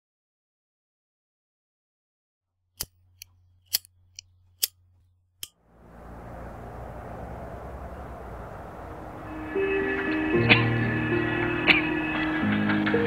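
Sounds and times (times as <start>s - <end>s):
faint low hum: 3.0s - 13.0s
steady rushing background noise: 5.6s - 13.0s.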